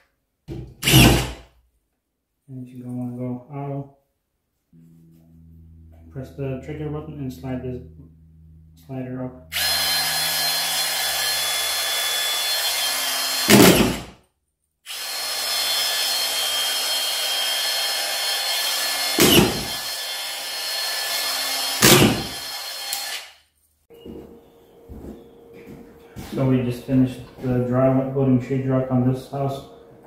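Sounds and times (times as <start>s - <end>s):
screw gun whirring: 0.8s - 1.4s, 9.5s - 14.0s, 14.9s - 23.4s.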